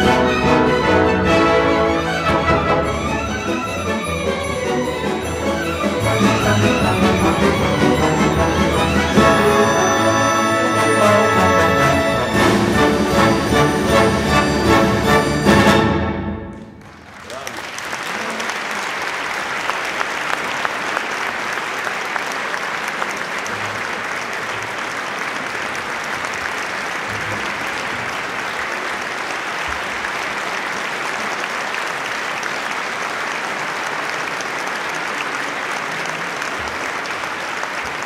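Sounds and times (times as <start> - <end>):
audience applauding: 16.5 - 38.0.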